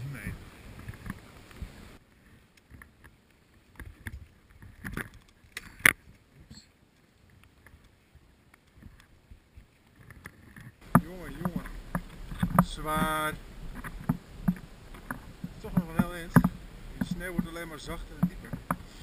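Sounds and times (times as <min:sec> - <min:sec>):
ski poles planted in snow: 0:00.0 - 0:19.0
skis crunching through snow: 0:11.0 - 0:19.0.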